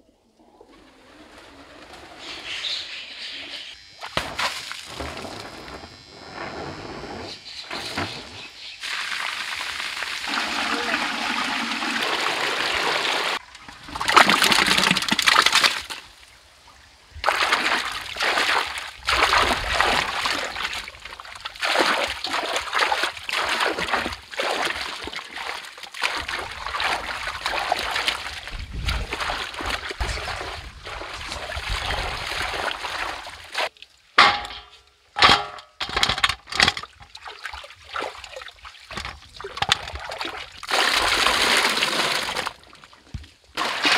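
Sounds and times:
water splashing and sloshing: 0:04.0 - 0:05.8, 0:07.7 - 0:16.3, 0:17.2 - 0:43.9
water gushing onto stone paving: 0:08.8 - 0:15.8, 0:37.4 - 0:43.9.

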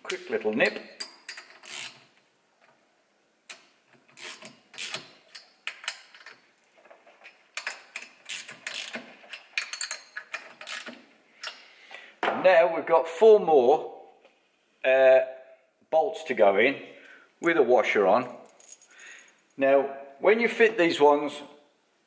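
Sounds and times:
socket ratchet clicking: 0:03.5 - 0:06.4, 0:07.6 - 0:11.6.

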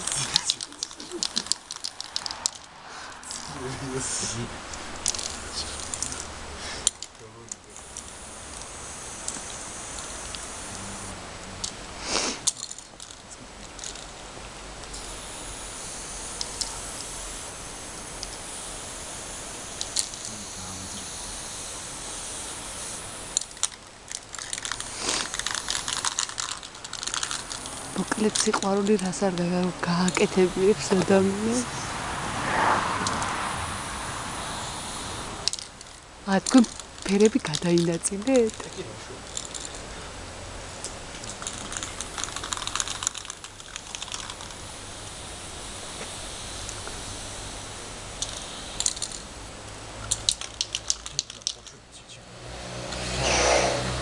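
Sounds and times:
steady hiss: 0:00.0 - 0:54.0
chalk scratching on asphalt: 0:24.8 - 0:26.0, 0:52.6 - 0:54.0
sharp clicks: 0:50.0 - 0:51.8.

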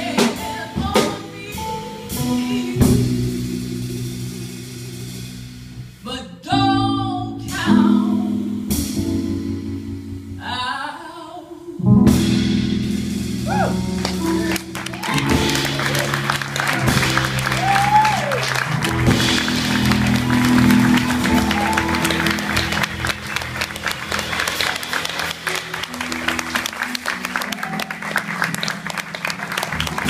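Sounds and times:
drums and cymbals: 0:00.0 - 0:06.2, 0:07.4 - 0:10.4, 0:11.9 - 0:26.3
woman singing jazz: 0:00.0 - 0:08.9, 0:10.4 - 0:12.5
upright bass: 0:00.0 - 0:10.7, 0:11.9 - 0:27.8
audience applause: 0:14.0 - 0:30.0.

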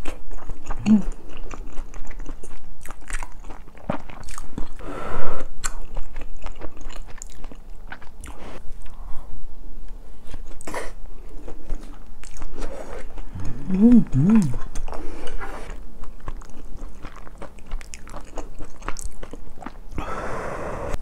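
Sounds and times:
chewing with wet mouth clicks: 0:00.0 - 0:04.8, 0:05.5 - 0:09.0, 0:11.4 - 0:19.9.

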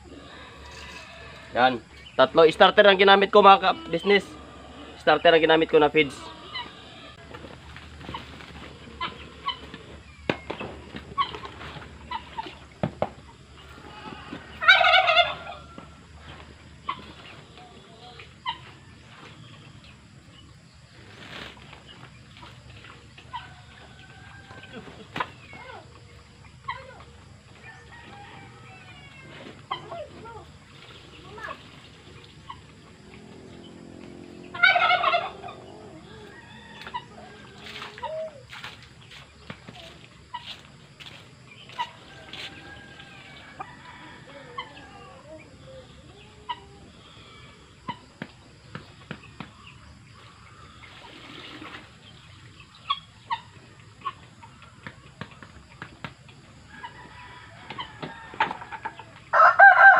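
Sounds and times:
poultry calling: 0:00.0 - 0:12.7, 0:13.3 - 0:19.7, 0:22.4 - 0:48.2
chickens clucking: 0:00.0 - 0:59.9
small birds chirping: 0:29.0 - 0:56.2.

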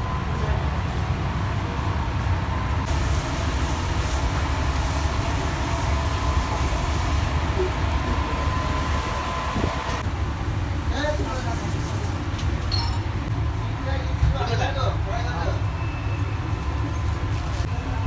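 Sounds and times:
faint steady whine: 0:00.0 - 0:11.1
hiss: 0:02.9 - 0:10.0.

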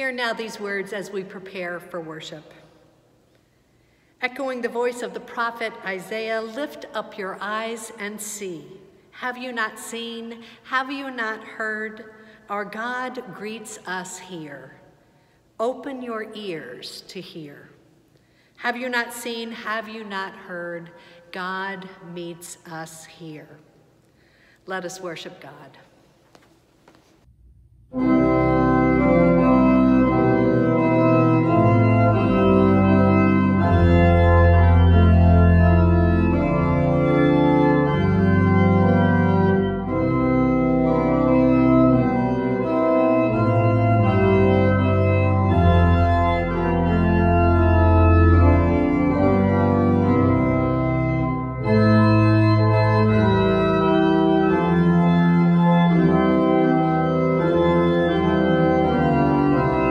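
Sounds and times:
pipe organ chords: 0:27.3 - 0:59.9.

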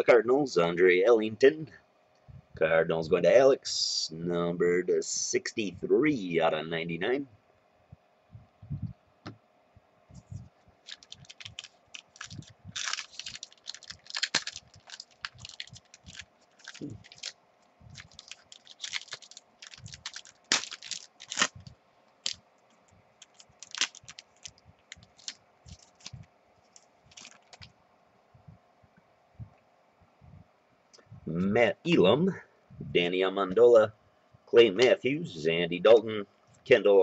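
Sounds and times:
wrapper crinkling and tearing: 0:10.8 - 0:22.4, 0:23.2 - 0:27.7.

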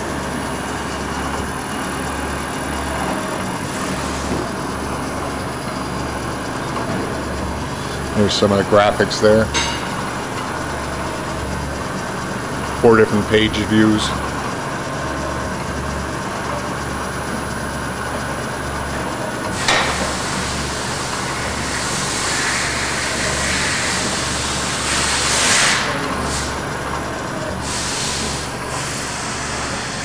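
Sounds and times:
low hum cutting in and out: 0:00.0 - 0:30.0
milling machine running: 0:00.0 - 0:30.0
air hiss: 0:21.7 - 0:26.6.

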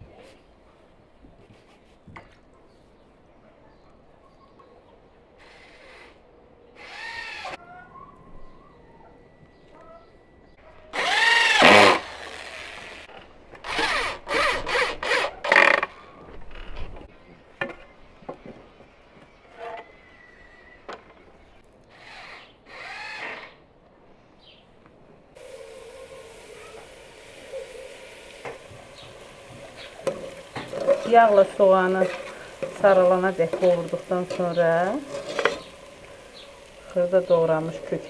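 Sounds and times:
power drill bursts: 0:11.0 - 0:15.7.

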